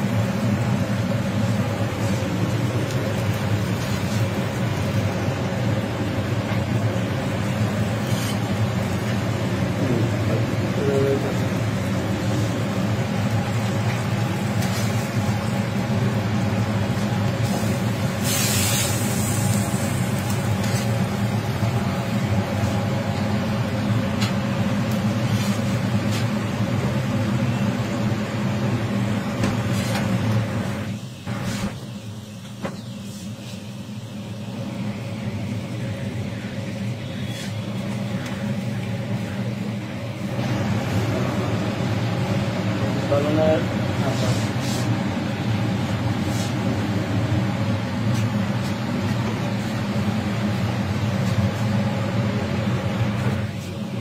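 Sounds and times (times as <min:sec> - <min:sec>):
low mechanical drone: 0:00.0 - 0:54.0
metal spatula scraping griddle: 0:08.0 - 0:08.5.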